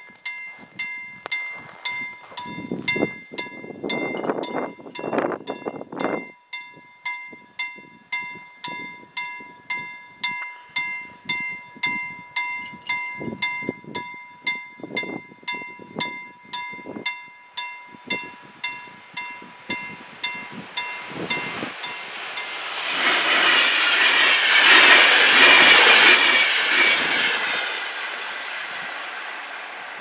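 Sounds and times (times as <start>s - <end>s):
level crossing warning bell: 0.0s - 22.6s
low rushing noise: 20.0s - 29.8s.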